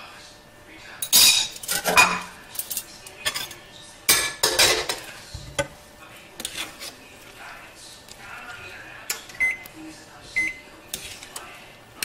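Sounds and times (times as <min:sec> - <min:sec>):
utensil clinking and scraping cookware: 0:01.0 - 0:05.8, 0:06.4 - 0:07.4, 0:10.8 - 0:11.6.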